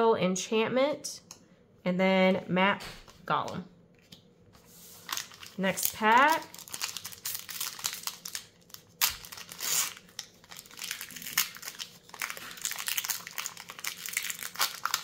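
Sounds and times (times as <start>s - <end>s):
foil wrapper crinkling and tearing: 4.8s - 15.0s.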